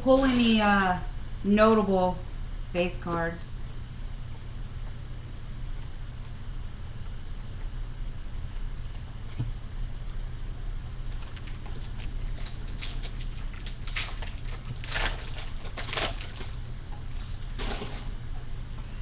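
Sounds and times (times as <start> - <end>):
foil wrapper crinkling and tearing: 11.1 - 18.1.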